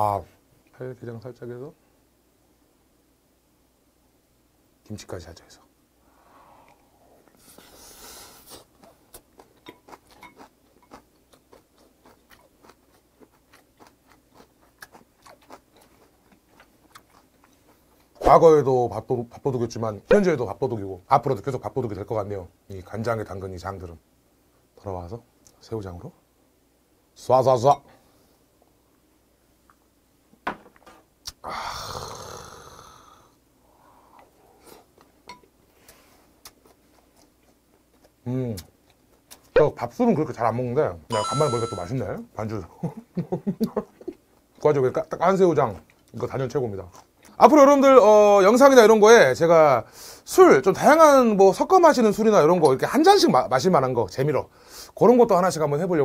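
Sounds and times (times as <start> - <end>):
breathy exhale: 6.0 - 8.6, 31.4 - 34.8
man chewing food: 6.7 - 18.2, 33.8 - 39.5, 42.9 - 44.6, 45.7 - 46.2, 46.8 - 47.4.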